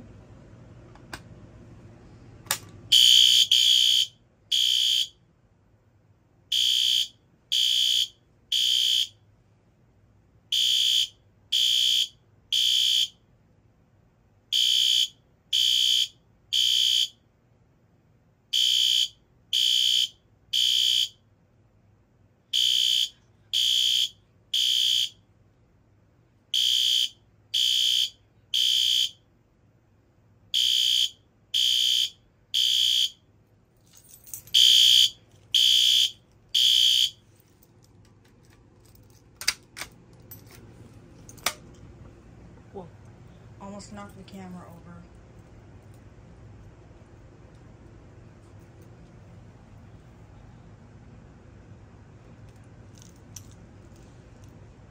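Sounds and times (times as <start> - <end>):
fire alarm horn beeping: 2.9 - 5.2, 6.5 - 9.3, 10.5 - 13.2, 14.5 - 17.2, 18.5 - 21.2, 22.5 - 25.2, 26.5 - 29.3, 30.5 - 33.3, 34.5 - 37.3.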